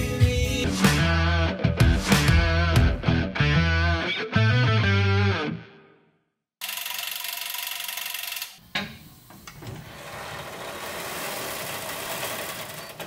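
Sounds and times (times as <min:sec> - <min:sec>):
power tool buzzing: 0:06.6 - 0:13.0
rough uneven mechanical noise: 0:09.1 - 0:13.0.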